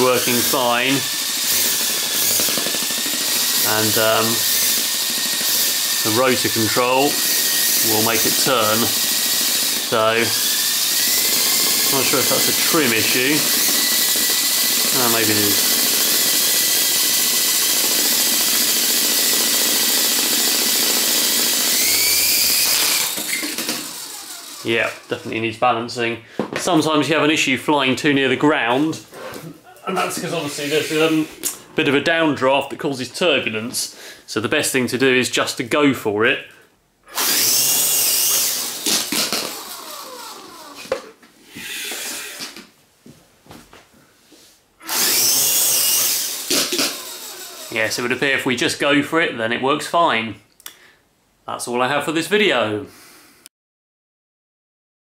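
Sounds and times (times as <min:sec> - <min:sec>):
spinning rotor rush: 0:00.0 - 0:25.1, 0:37.2 - 0:40.8, 0:44.9 - 0:48.2
model helicopter motor whining: 0:00.0 - 0:25.2, 0:37.1 - 0:41.1, 0:44.8 - 0:48.1.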